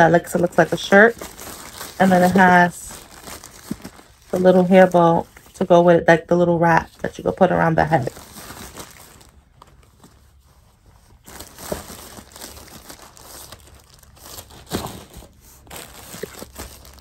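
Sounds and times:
plastic bag crinkling: 0:00.0 - 0:05.6, 0:07.2 - 0:17.0.

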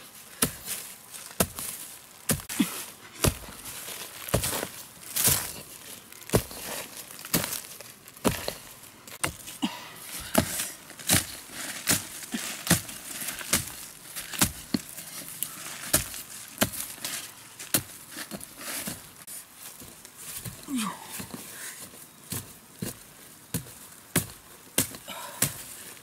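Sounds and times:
earth and dry leaves rustling: 0:00.0 - 0:26.0
hoe chopping into soil: 0:00.4 - 0:05.7, 0:06.3 - 0:08.6, 0:10.2 - 0:17.1, 0:22.3 - 0:25.7.

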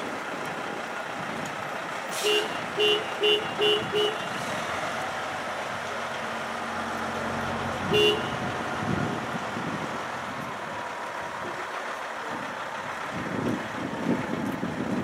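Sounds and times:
truck diesel engine rumbling: 0:00.0 - 0:15.0.

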